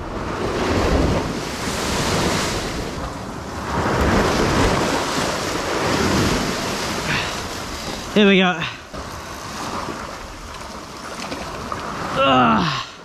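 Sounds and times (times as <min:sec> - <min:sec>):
wind buffeting microphone: 0:00.0 - 0:12.2
ocean surf crashing on rocks: 0:00.0 - 0:13.0.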